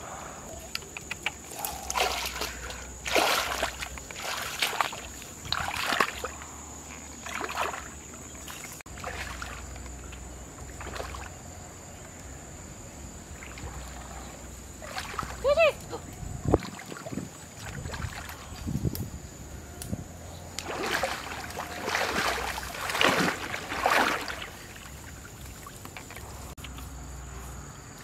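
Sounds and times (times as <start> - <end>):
legs wading through water: 1.3 - 11.6, 13.2 - 15.8, 16.5 - 18.7, 20.5 - 26.6.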